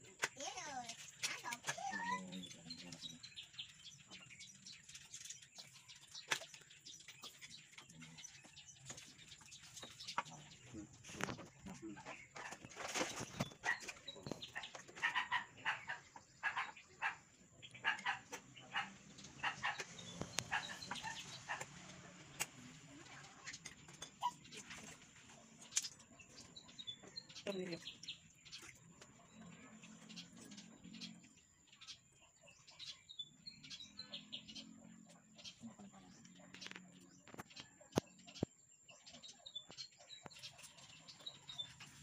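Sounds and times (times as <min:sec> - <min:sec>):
clucking animal calls: 0:07.1 - 0:22.6.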